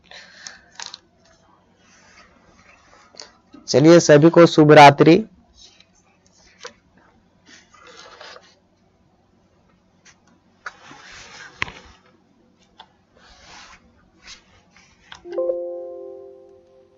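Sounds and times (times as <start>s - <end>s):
mouse rubbing and scraping on desk: 10.7s - 12.0s, 13.2s - 15.1s.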